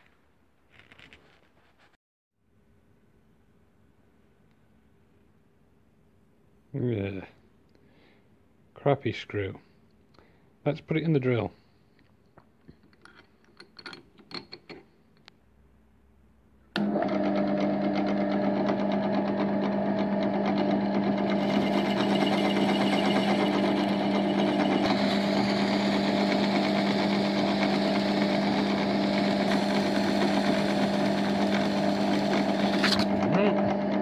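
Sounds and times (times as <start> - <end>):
drill motor humming: 16.8 - 34.0.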